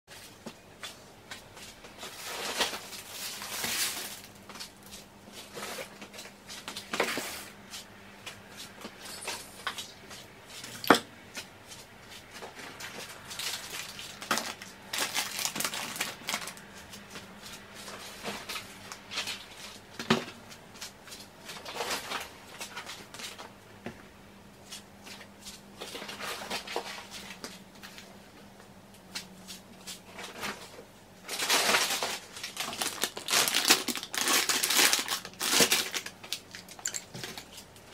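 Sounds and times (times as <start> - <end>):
rustling plastic packaging: 1.6 - 7.8, 12.1 - 23.5, 25.1 - 28.1, 30.0 - 37.9.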